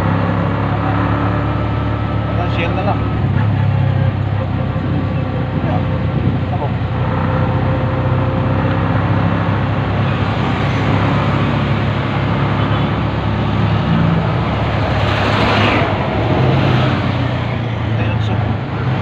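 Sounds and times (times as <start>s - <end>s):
engine hum: 0.0s - 19.0s
passing traffic rush: 0.0s - 19.0s
wind and road noise: 0.0s - 19.0s.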